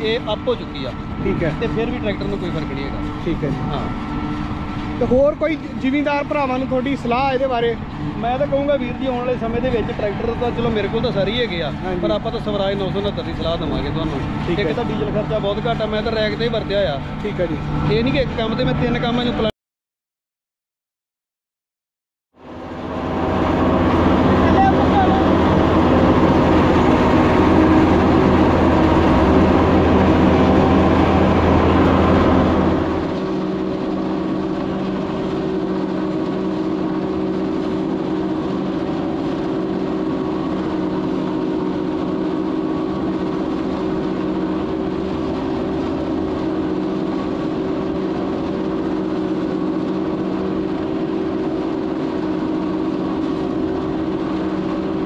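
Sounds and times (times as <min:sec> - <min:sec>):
even hum with steady tones: 0:00.0 - 0:19.5
tractor engine running: 0:22.6 - 0:55.0.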